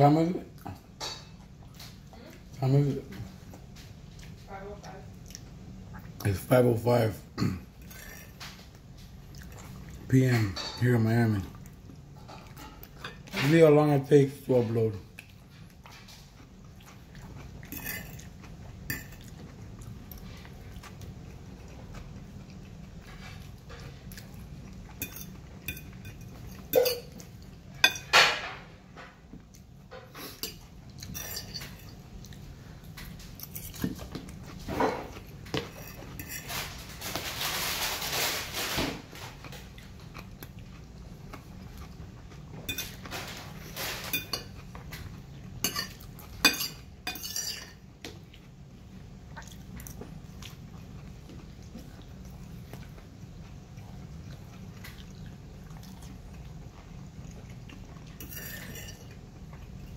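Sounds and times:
chewing: 5.1 - 6.4, 7.8 - 10.1, 15.0 - 27.7, 39.2 - 46.4, 48.0 - 59.9
fork scraping a plate: 17.6 - 18.3, 30.0 - 32.0, 34.7 - 38.9, 45.6 - 47.8, 58.2 - 59.2.

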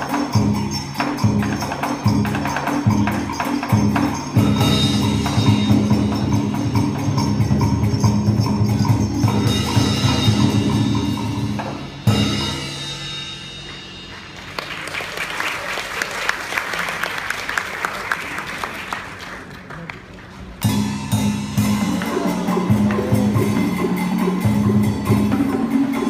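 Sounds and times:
traditional ensemble music with percussion: 0.0 - 16.0, 20.3 - 26.0
audience applause: 14.1 - 20.6.

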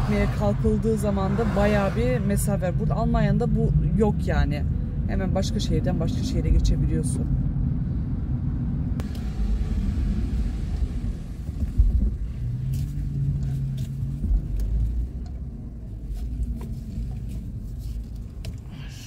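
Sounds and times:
car engine and road rumble: 0.0 - 19.0.

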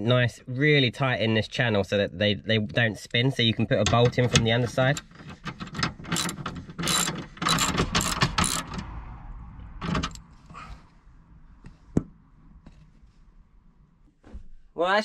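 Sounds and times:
socket ratchet clicking: 5.4 - 8.9.

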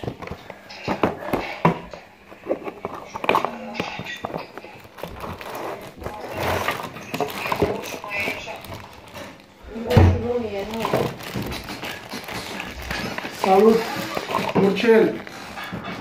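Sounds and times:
cardboard box tapping and knocking: 0.0 - 5.7
plastic bag rustling: 0.0 - 16.0.

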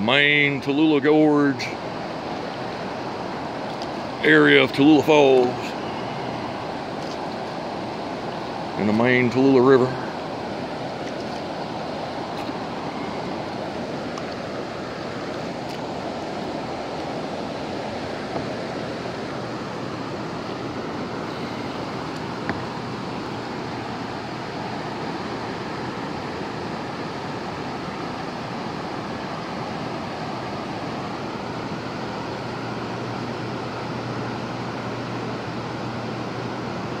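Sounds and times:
river rapids rushing over rocks: 10.0 - 32.1.

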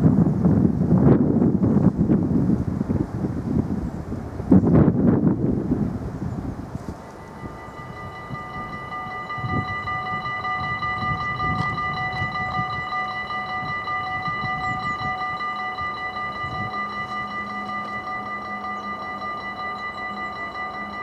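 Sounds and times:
wind rumbling on microphone: 0.0 - 21.0
level crossing warning bells: 6.8 - 21.0.

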